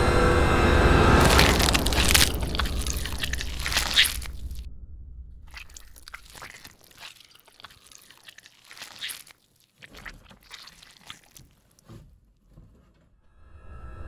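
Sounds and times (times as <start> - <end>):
rustling and scraping: 1.2 - 4.7, 5.5 - 13.2.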